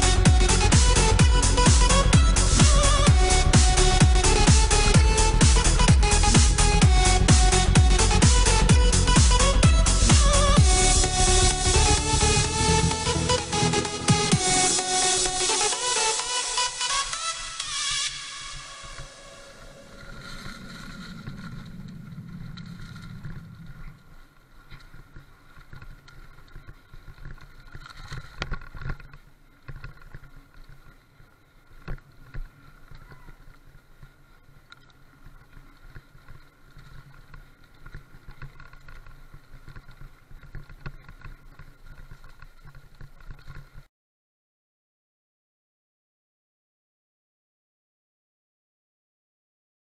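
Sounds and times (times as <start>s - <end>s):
bike tyres rumbling on dirt: 0.0s - 13.3s, 18.5s - 43.9s.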